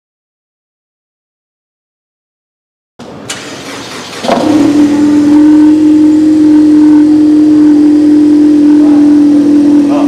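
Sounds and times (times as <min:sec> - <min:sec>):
car engine cranking: 0:03.0 - 0:10.0
car engine revving and idling: 0:03.0 - 0:10.0.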